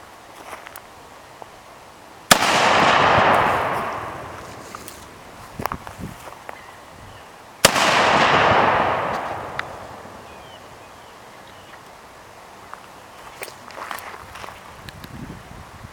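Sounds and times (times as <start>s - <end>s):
cannon bang: 2.3s - 5.1s, 7.6s - 10.5s.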